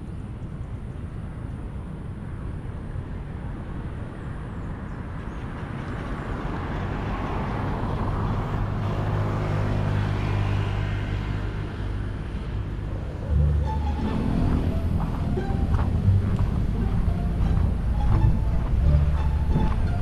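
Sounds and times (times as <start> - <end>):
vehicle passing: 5.0 - 20.0.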